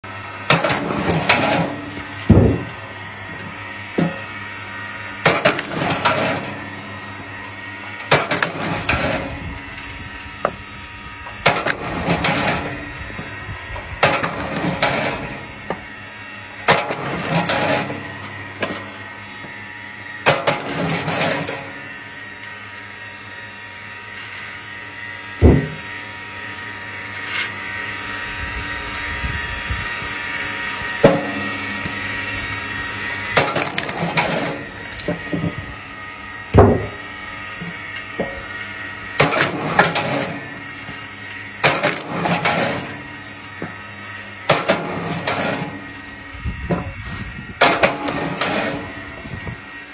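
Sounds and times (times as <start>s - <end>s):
log splitter motor humming: 0.0s - 49.9s
wood splitting crack: 5.2s - 6.5s, 8.1s - 9.3s, 11.4s - 12.8s, 16.7s - 18.0s, 20.2s - 21.6s, 33.4s - 35.4s, 39.2s - 40.3s, 41.6s - 42.9s, 44.5s - 45.6s
firewood clattering: 33.4s - 35.6s.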